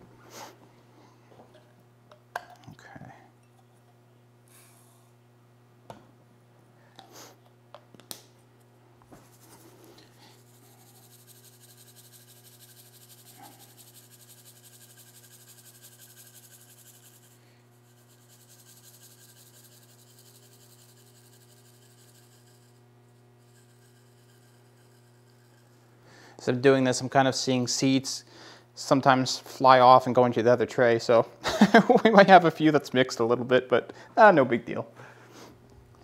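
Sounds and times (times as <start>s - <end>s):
steady low hum: 0.0s - 36.0s
seeds rattling in plastic shaker: 9.2s - 22.8s.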